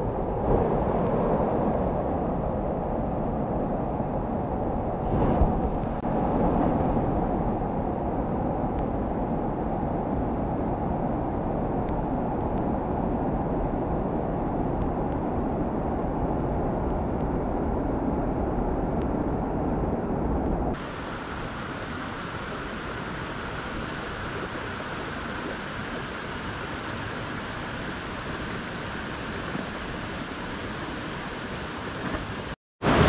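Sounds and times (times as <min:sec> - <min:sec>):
stream water rushing: 0:20.7 - 0:33.0.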